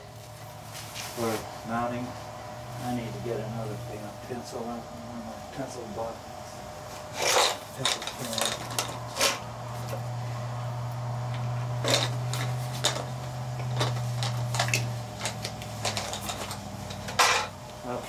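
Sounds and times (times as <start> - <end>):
steady low hum: 0.0 - 18.0
small tools clinking: 7.1 - 10.0, 11.3 - 17.6.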